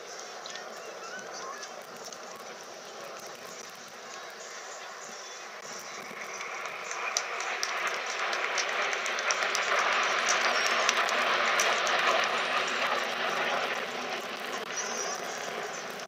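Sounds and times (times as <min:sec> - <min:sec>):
jet engines rushing: 0:00.0 - 0:16.0
sharp crackles: 0:00.0 - 0:16.0.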